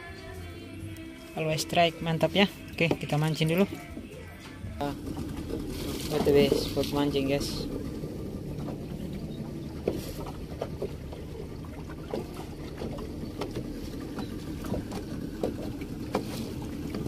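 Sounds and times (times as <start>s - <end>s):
boat engine rumble: 0.0s - 17.0s
light irregular knocks: 8.6s - 17.0s.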